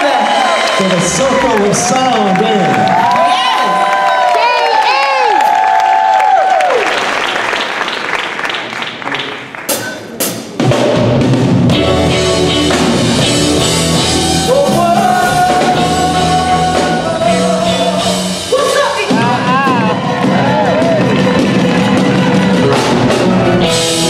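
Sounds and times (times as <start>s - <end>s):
audience clapping in rhythm: 0.0s - 10.8s, 12.6s - 24.0s
live rock band playing: 9.7s - 24.0s.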